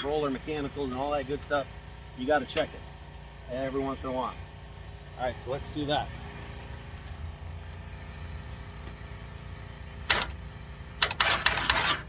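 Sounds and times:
low background rumble: 0.0s - 12.0s
sharp clicks: 10.0s - 10.4s, 11.0s - 12.0s.

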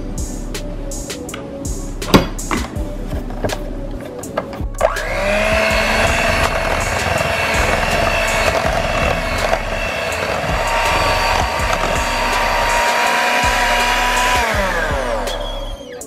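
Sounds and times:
electric hand mixer running: 4.8s - 15.8s.

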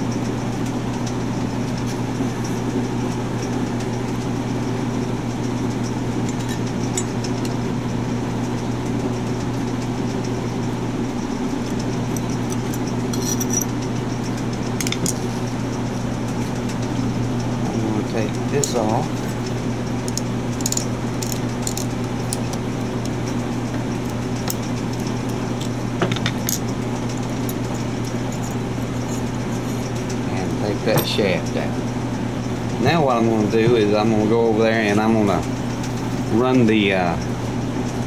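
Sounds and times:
low machine hum: 0.0s - 38.0s
screwdriver clicking on screws: 20.1s - 23.2s.

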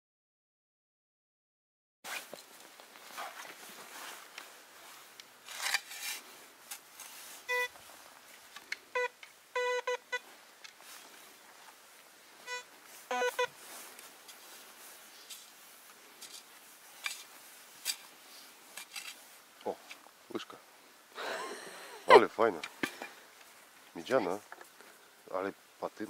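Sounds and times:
shovel cutting turf: 5.4s - 7.1s
metal detector beeps: 7.5s - 7.8s, 8.9s - 10.2s, 12.4s - 13.5s.

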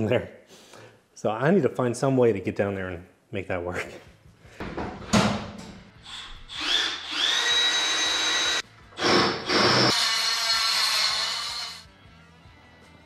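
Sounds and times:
power drill whining: 6.0s - 11.8s.

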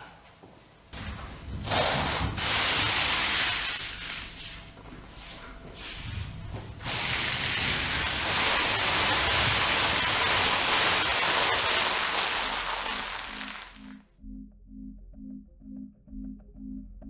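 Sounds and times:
loud steady hiss: 6.8s - 14.0s.

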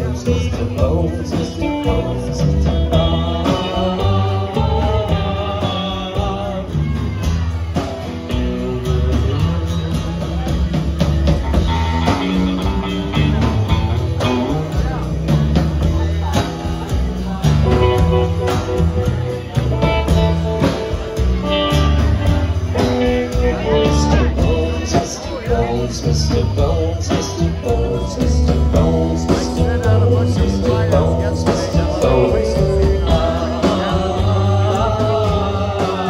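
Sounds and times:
live band playing: 0.0s - 36.0s.

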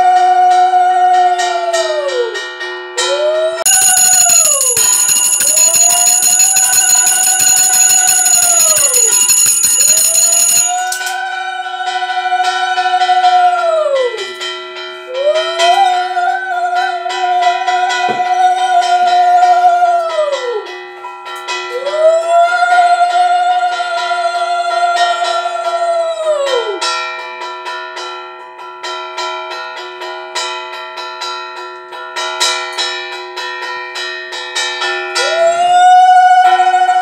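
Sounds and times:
hand bell ringing rapidly: 3.7s - 11.2s.

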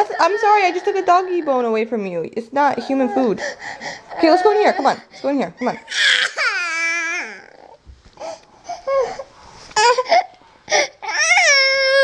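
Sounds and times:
toddler crying: 0.0s - 1.6s, 5.8s - 7.8s, 8.7s - 12.0s.

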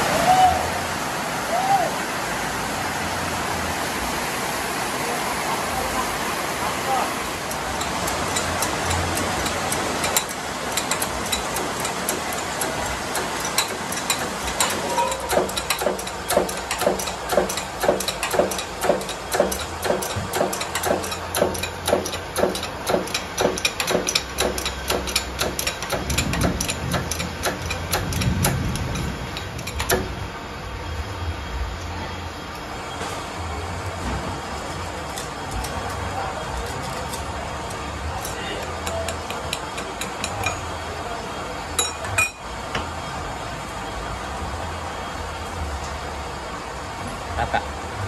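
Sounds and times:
hydraulic press pump clicks: 7.8s - 30.1s.

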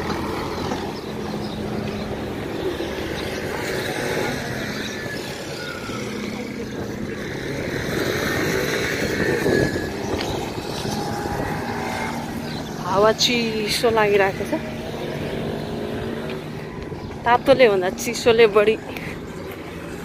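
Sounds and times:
motor traffic din: 0.0s - 20.0s
wind buffeting microphone: 0.0s - 20.0s.

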